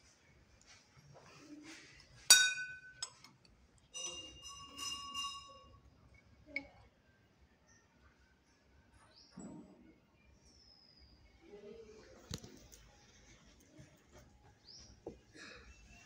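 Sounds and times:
brass bell ringing: 0:04.0 - 0:05.7.

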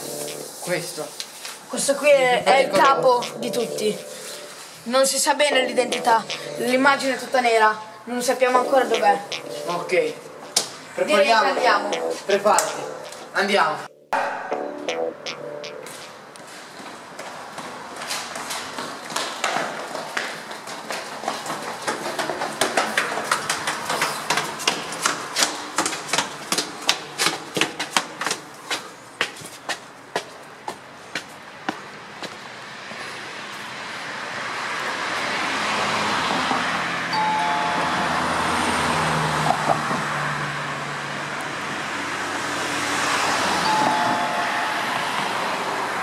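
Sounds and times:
cars passing on street: 0:00.0 - 0:46.0
two-note falling tone: 0:13.9 - 0:16.0, 0:37.2 - 0:38.3, 0:43.7 - 0:45.0
footsteps running on hard floor: 0:16.6 - 0:32.4.

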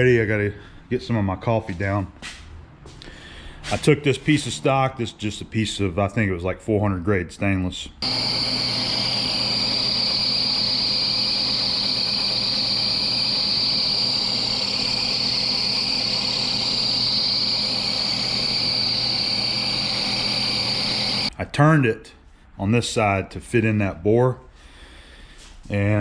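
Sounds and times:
high machine whine: 0:08.0 - 0:21.3
lathe humming: 0:08.0 - 0:21.3.

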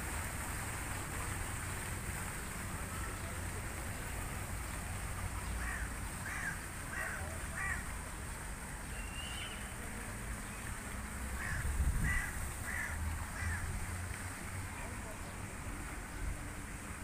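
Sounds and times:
crow cawing: 0:05.6 - 0:07.8, 0:11.4 - 0:13.6.

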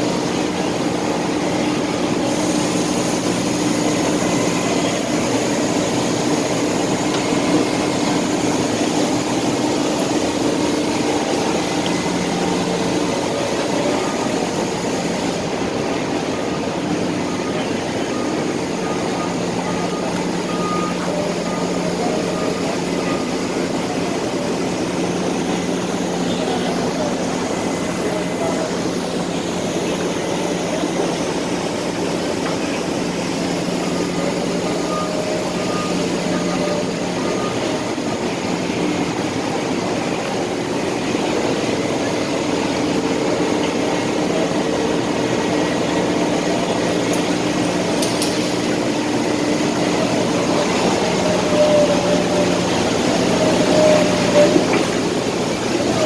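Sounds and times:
forklifts running: 0:00.0 - 0:56.0
steady mechanical hum: 0:00.0 - 0:56.0
reversing beeper: 0:02.1 - 0:39.1.

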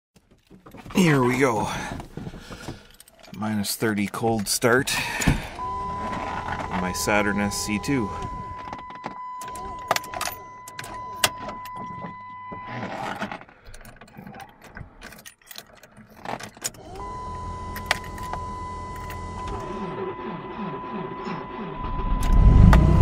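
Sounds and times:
car keys jangling and clicking: 0:00.2 - 0:20.0
high electronic warning tone: 0:05.6 - 0:13.1, 0:16.8 - 0:23.0
low hum: 0:16.8 - 0:23.0.

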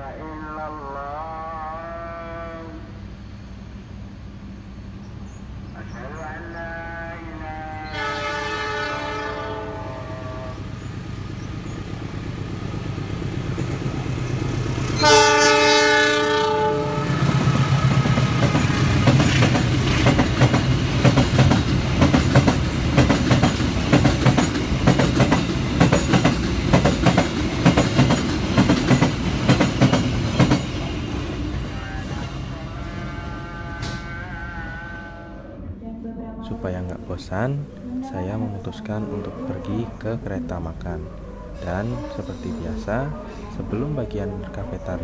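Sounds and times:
freight train rumbling past: 0:00.0 - 0:45.0
train horn: 0:00.4 - 0:03.0, 0:05.9 - 0:10.8, 0:14.9 - 0:18.4, 0:30.5 - 0:36.7
wheels clacking over rail joints: 0:17.0 - 0:31.6.

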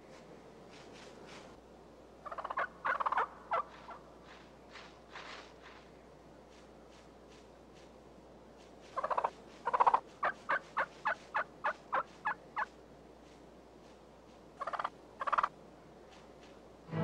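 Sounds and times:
turkey gobbling: 0:02.2 - 0:04.1, 0:09.0 - 0:12.8, 0:14.6 - 0:15.5.

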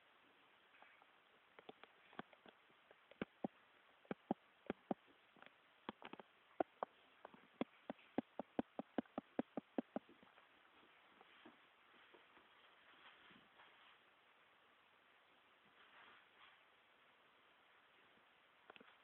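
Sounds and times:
puppy clicks and taps: 0:04.1 - 0:10.1.

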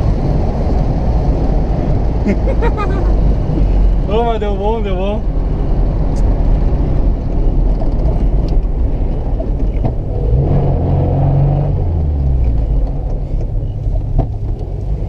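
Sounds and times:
car engine running: 0:00.0 - 0:15.0
road and wind noise: 0:00.0 - 0:15.0.

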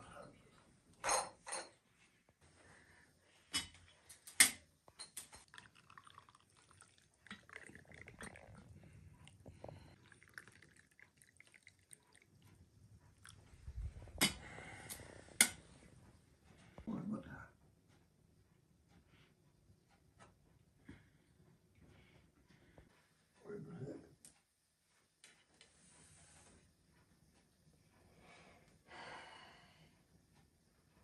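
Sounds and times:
tea trickling into glass: 0:05.4 - 0:12.4.

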